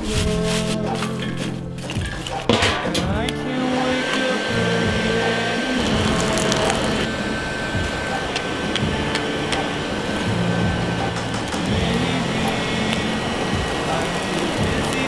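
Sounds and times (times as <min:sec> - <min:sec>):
fire crackling: 0:00.0 - 0:15.0
hair dryer blowing: 0:03.2 - 0:15.0.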